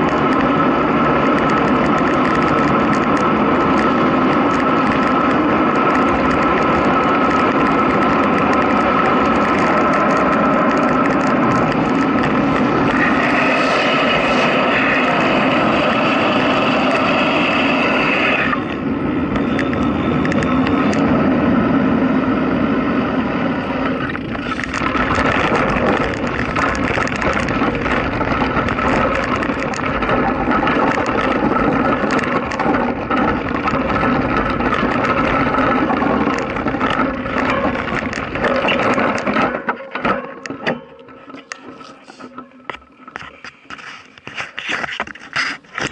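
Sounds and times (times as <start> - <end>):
road ride noise: 0.0 - 45.9.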